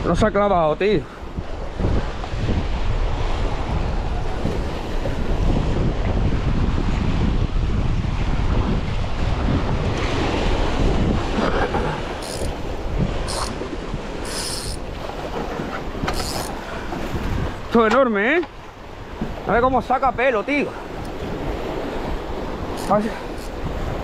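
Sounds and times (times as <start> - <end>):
sea surf: 0.0 - 24.0
wind buffeting microphone: 0.0 - 24.0.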